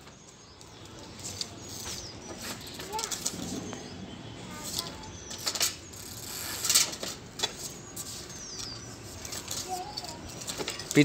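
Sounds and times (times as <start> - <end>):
bicycle rattling and clinking: 9.2 - 11.0.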